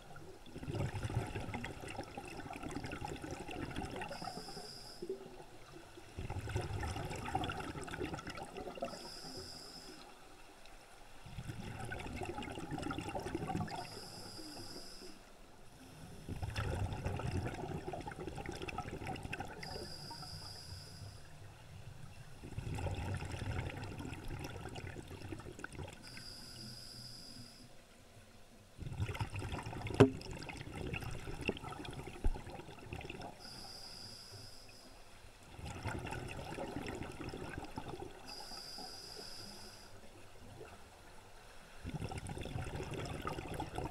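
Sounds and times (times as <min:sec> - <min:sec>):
exhaled bubbles rushing: 0:00.0 - 0:04.3, 0:06.2 - 0:09.0, 0:11.3 - 0:13.9, 0:16.3 - 0:19.8, 0:22.4 - 0:26.0, 0:28.8 - 0:33.4, 0:35.5 - 0:38.3, 0:41.8 - 0:43.9
diver breathing through regulator: 0:13.8 - 0:16.4, 0:33.4 - 0:34.9, 0:38.3 - 0:40.0.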